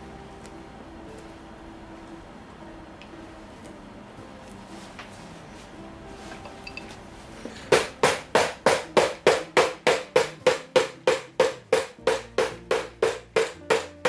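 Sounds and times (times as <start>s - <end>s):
hammer tapping with metallic ring: 6.4s - 7.0s.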